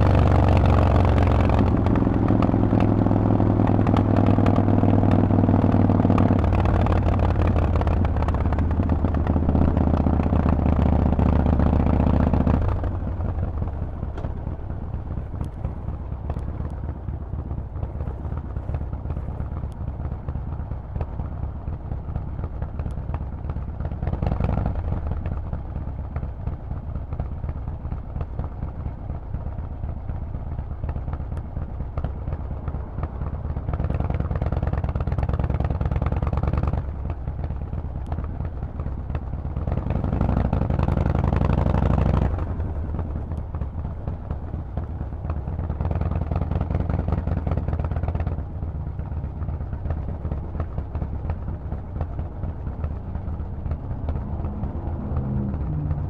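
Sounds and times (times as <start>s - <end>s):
motorcycle engine revving: 0.0s - 16.7s, 38.8s - 43.7s, 44.3s - 56.0s.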